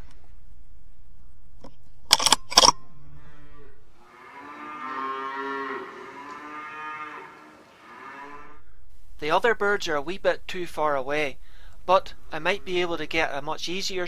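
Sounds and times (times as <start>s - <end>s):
cattle mooing: 3.0s - 8.6s, 12.3s - 13.1s.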